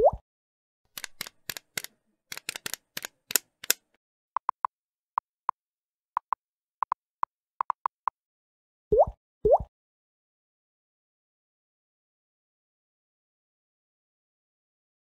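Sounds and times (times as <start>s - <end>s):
sharp key clicks: 0.9s - 3.8s.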